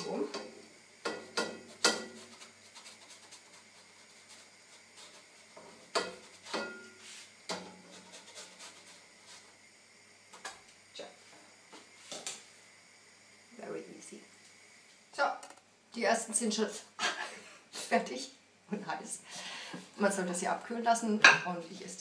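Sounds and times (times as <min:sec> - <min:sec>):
spatula scraping a frying pan: 0:00.0 - 0:09.6.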